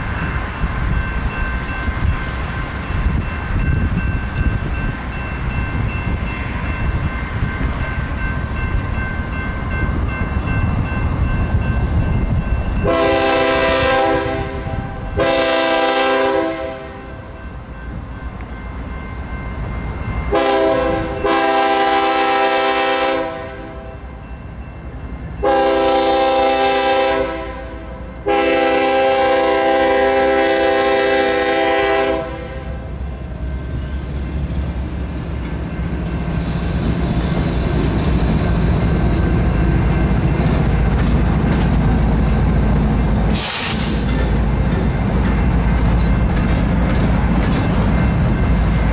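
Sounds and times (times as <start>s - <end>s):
locomotive horn blasts: 12.8s - 17.2s, 20.3s - 24.0s, 25.4s - 32.9s
brief hiss: 43.3s - 44.2s
wheels clattering over rails: 43.3s - 48.0s.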